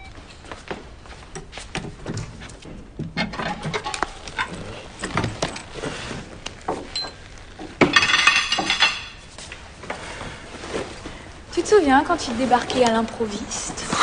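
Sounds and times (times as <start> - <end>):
kitchenware clicks and knocks: 7.8 - 9.2
clattering metal or glass: 7.9 - 9.2.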